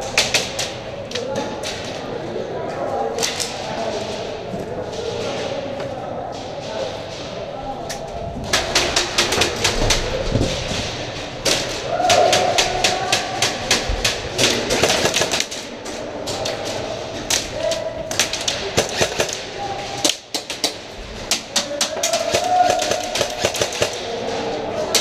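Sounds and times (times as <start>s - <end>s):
airsoft guns firing: 10.8s - 15.7s, 18.1s - 24.2s.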